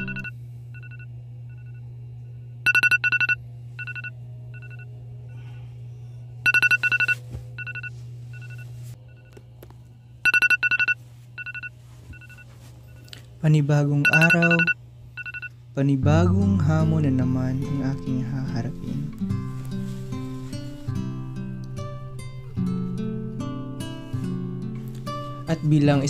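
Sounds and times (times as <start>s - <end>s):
high-pitched alarm beeping: 0.0s - 1.8s, 2.6s - 4.9s, 6.4s - 9.3s, 10.2s - 13.1s, 14.0s - 15.5s
steady low hum: 0.0s - 26.0s.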